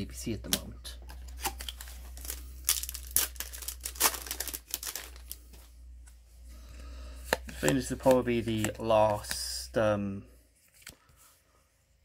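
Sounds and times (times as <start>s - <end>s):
foil wrapper crinkling and tearing: 1.3s - 5.4s.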